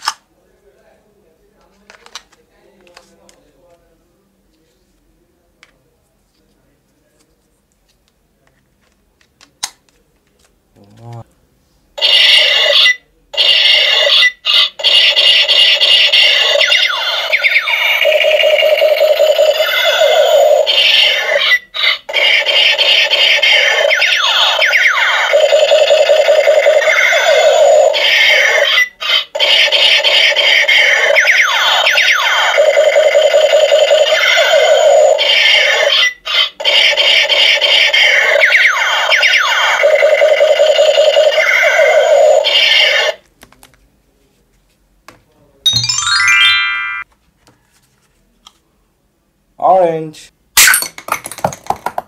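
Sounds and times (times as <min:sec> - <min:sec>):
toy gun harsh buzzing tone: 0:12.0 - 0:33.4, 0:34.0 - 0:43.2
descending electronic beeps: 0:16.6 - 0:19.9, 0:45.7 - 0:47.0
toy gun falling pitch sweeps: 0:45.7 - 0:47.0
warbling electronic tone: 0:45.7 - 0:47.0.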